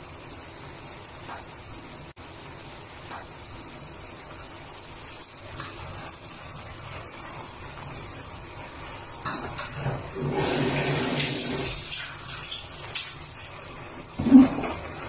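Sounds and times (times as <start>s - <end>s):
steady hiss: 0.0s - 9.7s.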